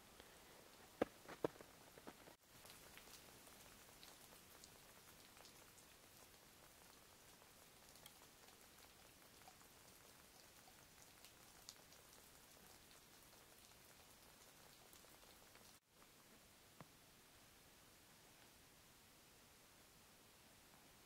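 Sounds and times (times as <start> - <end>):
water dripping: 0.0 - 15.8
steady hiss: 0.0 - 21.0.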